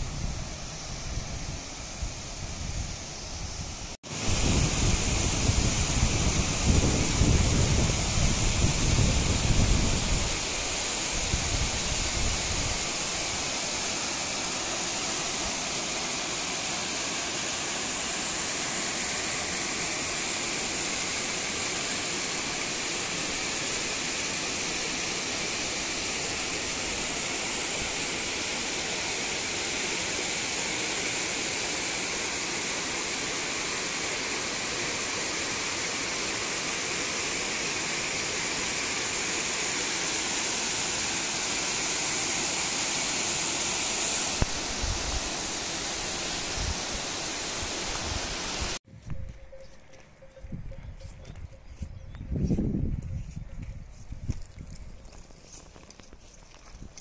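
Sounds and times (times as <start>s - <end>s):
waterfall rushing: 4.0s - 48.8s.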